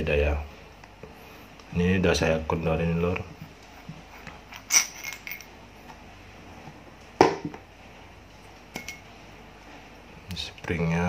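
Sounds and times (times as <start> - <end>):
small metal parts clinking: 4.5 - 5.5.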